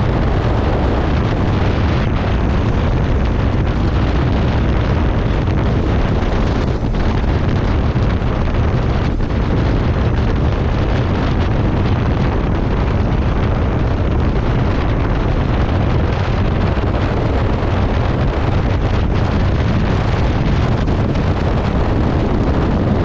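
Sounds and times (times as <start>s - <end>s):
heavy rain: 0.0s - 23.0s
road noise: 0.0s - 23.0s
wind rumble on microphone: 0.0s - 23.0s.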